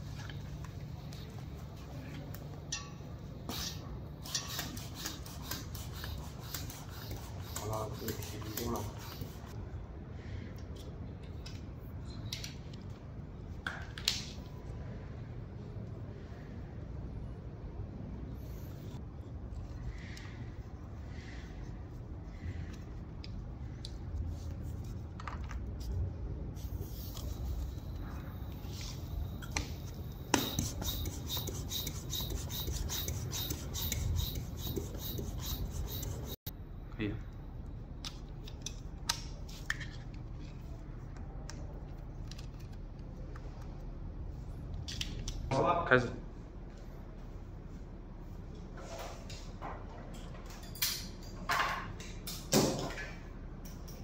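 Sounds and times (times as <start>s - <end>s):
steady low hum: 0.0s - 54.0s
floor pump strokes rasping air: 28.6s - 36.5s.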